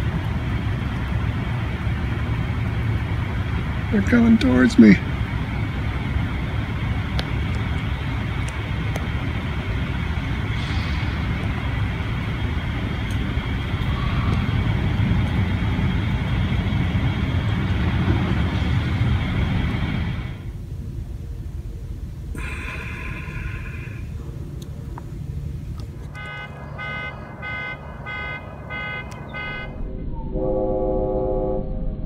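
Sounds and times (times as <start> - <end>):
vehicle engine rumble: 0.0 - 32.0
faint high whine: 9.6 - 31.6.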